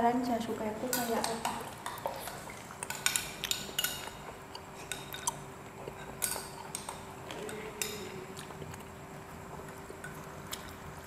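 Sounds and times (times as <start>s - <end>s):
faint steady hum: 0.0s - 11.0s
wet eating noises: 1.2s - 11.0s
cutlery clicking and scraping dishes: 2.8s - 4.2s, 5.9s - 8.1s.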